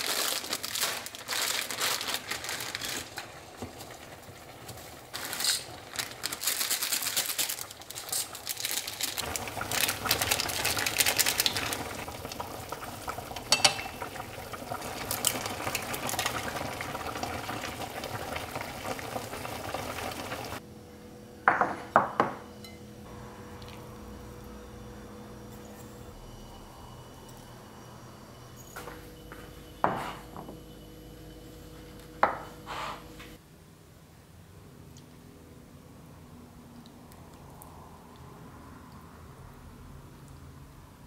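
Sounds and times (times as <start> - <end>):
water boiling in saucepan: 2.8 - 20.6
utensils clinking against pot: 13.4 - 14.1.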